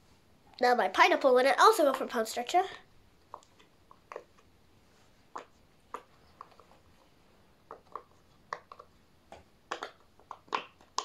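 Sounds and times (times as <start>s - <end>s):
fidget toy bubbles popping: 7.7s - 11.0s.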